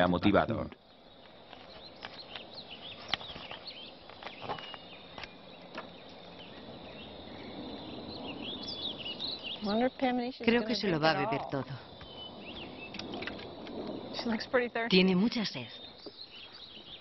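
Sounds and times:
faint insect buzz: 0:00.0 - 0:17.0
small birds chirping: 0:00.0 - 0:17.0.

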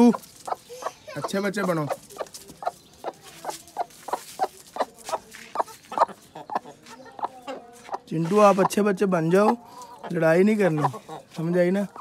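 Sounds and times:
chicken clucking: 0:00.0 - 0:12.0.

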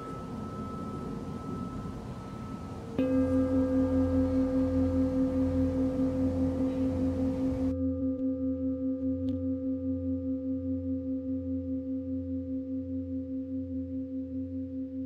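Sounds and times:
singing bowl ringing: 0:00.0 - 0:15.0.

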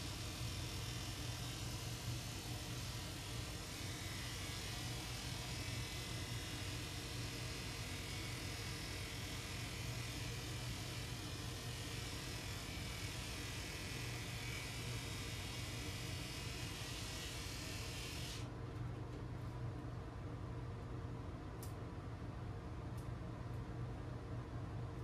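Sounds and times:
electric clippers humming: 0:00.0 - 0:18.5.

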